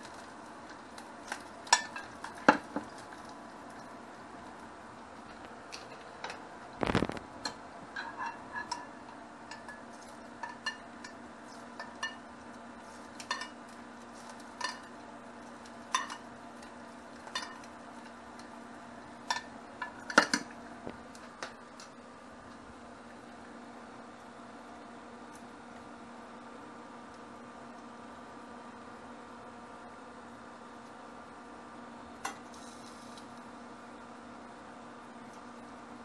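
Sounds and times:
faint steady hum: 0:00.0 - 0:36.0
metal spoon scraping frying pan: 0:08.0 - 0:09.8.

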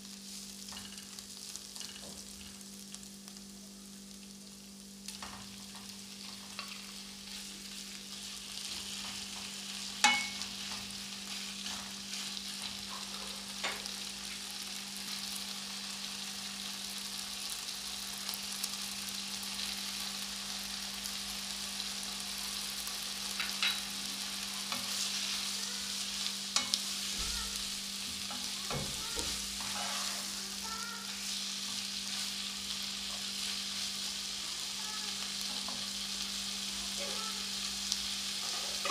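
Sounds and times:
chicken and onions sizzling in a pan: 0:00.0 - 0:38.9
sharp knocks against a pan: 0:10.0 - 0:10.4
spatula stirring: 0:26.6 - 0:30.4.

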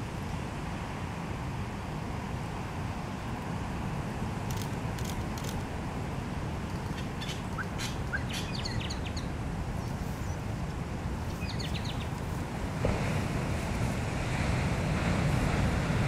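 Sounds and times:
bird chirps: 0:06.8 - 0:10.4, 0:11.3 - 0:12.1.

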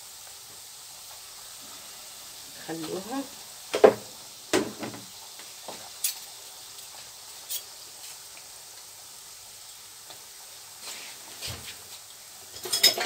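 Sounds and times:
dough deep-frying in oil: 0:00.0 - 0:13.0
knock: 0:03.8 - 0:05.1.

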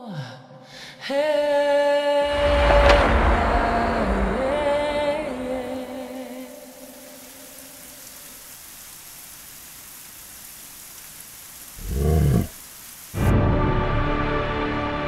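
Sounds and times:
steady hiss: 0:02.3 - 0:13.6
lion roar: 0:11.8 - 0:12.6
music: 0:13.2 - 0:15.0.

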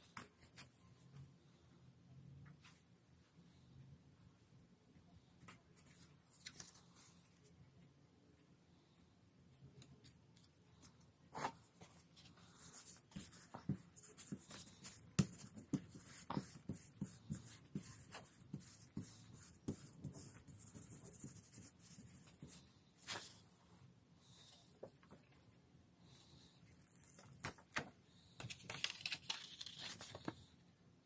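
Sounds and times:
paper rustling and rubbing: 0:28.4 - 0:30.4.

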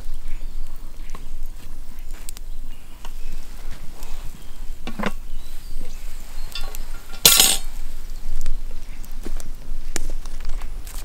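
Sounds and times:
metal scraping on coals: 0:01.6 - 0:08.1.

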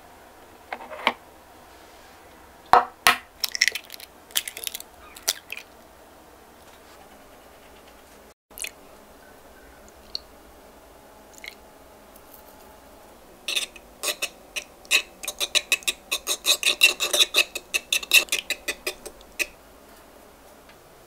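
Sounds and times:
whisk clicking against bowl: 0:13.5 - 0:19.5.

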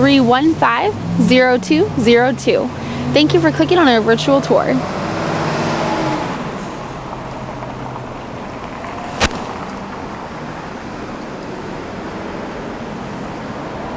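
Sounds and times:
distant traffic: 0:00.0 - 0:13.9
sharp click: 0:09.1 - 0:09.7.

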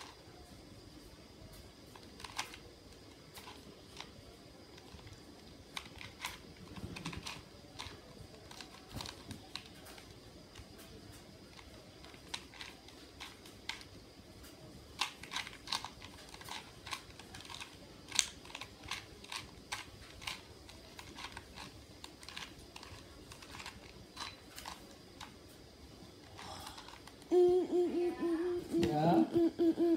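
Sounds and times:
puzzle cube layers clicking: 0:15.0 - 0:25.4.

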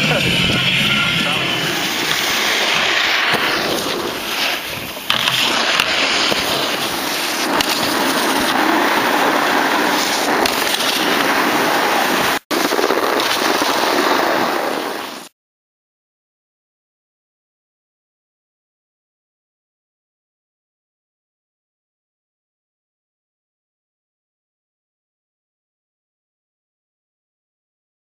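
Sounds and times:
wind on microphone: 0:00.0 - 0:15.2
snowboards sliding on snow: 0:00.0 - 0:15.3.

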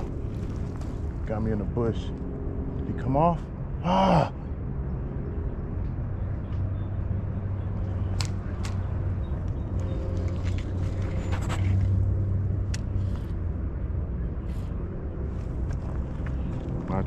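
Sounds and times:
wind rumble on microphone: 0:00.0 - 0:03.8.

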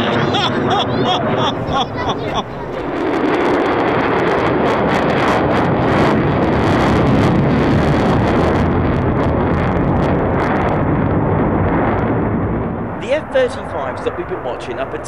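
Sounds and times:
jet engine roaring: 0:00.0 - 0:15.0
rapid jet crackle: 0:00.0 - 0:15.0.

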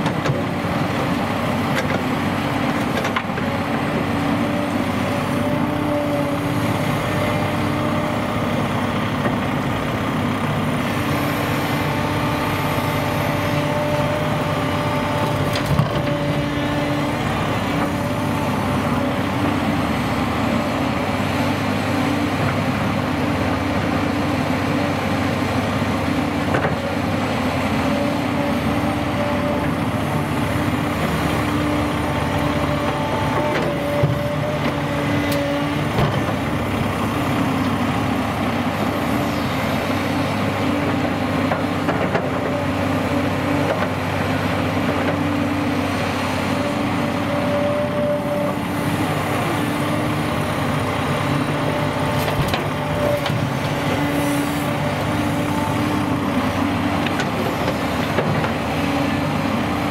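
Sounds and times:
excavator diesel engine: 0:00.0 - 0:59.9
hydraulic whine: 0:31.1 - 0:41.0, 0:52.0 - 0:59.9.

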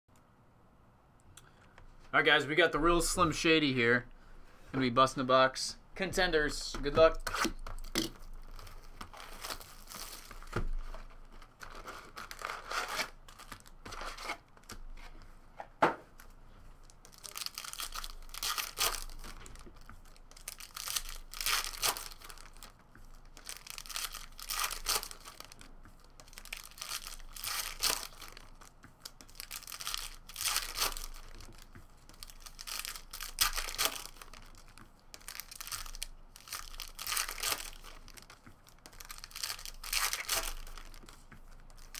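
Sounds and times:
wrappers tearing and crinkling: 0:07.2 - 0:14.8, 0:16.8 - 0:41.9.

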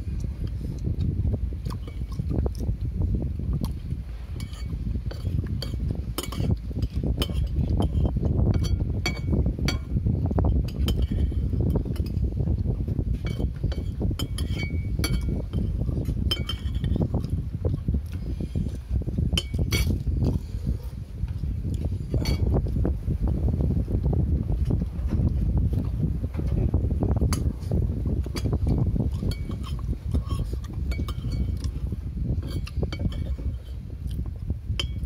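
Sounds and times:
steady low rumble: 0:00.0 - 0:35.0
spoons clinking on plates: 0:04.4 - 0:06.6, 0:07.2 - 0:07.6, 0:10.6 - 0:11.4, 0:13.2 - 0:15.7, 0:16.3 - 0:17.0, 0:29.2 - 0:31.7.

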